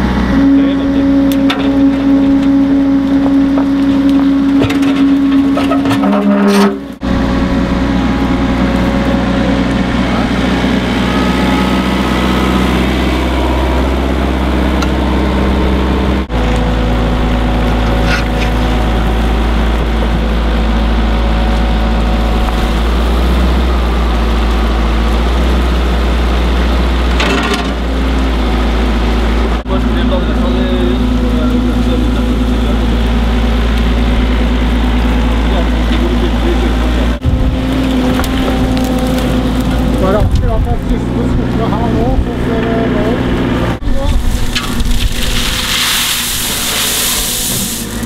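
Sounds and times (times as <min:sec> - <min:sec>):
diesel engine running: 0:00.0 - 0:48.0.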